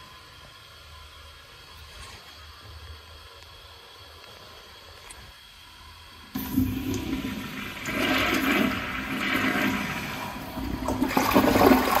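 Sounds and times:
toilet flushing: 0:06.3 - 0:12.0.

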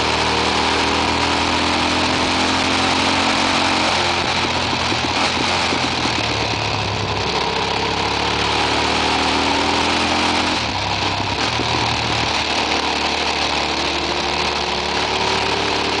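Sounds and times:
motorcycle engine at road speed: 0:00.0 - 0:16.0
wind rush on microphone: 0:04.0 - 0:07.2.

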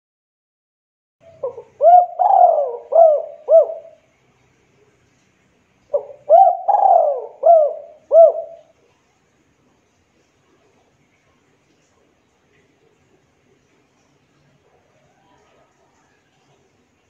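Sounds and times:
dove cooing: 0:01.2 - 0:04.0, 0:05.9 - 0:08.7.

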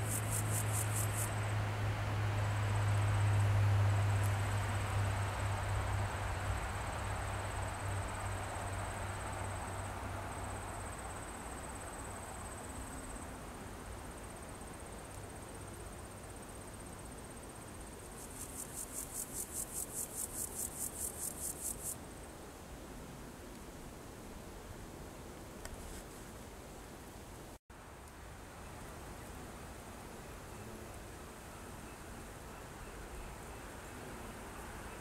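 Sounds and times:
insects trilling: 0:00.0 - 0:01.4, 0:14.2 - 0:22.0
high pulsing insect call: 0:00.0 - 0:01.6, 0:02.5 - 0:22.0.

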